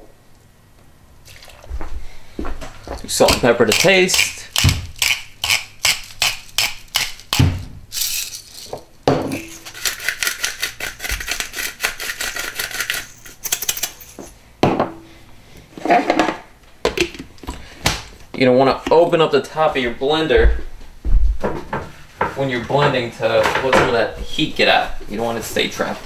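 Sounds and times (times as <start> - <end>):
grinder ratcheting clicks: 3.2 - 8.7, 9.4 - 14.2
gritty grinding: 8.0 - 14.4.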